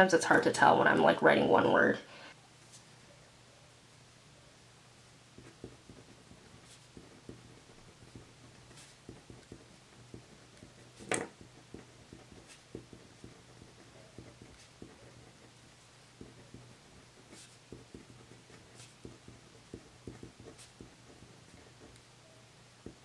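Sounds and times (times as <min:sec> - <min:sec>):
pen scratching on paper: 0:05.4 - 0:23.0.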